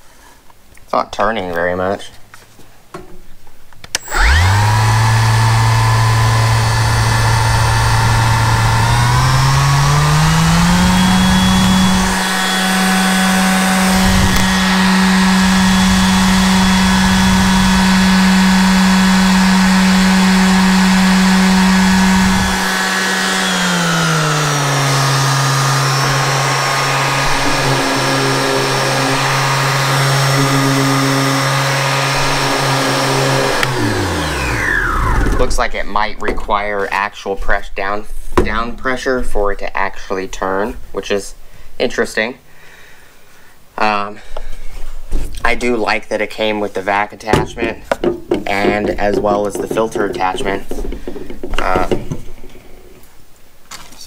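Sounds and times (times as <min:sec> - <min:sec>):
orbital sander motor whine: 0:04.0 - 0:35.9.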